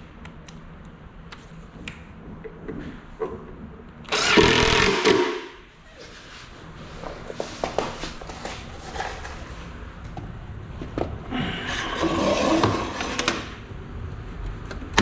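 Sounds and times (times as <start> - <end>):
cordless driver driving screw: 4.1 - 5.2.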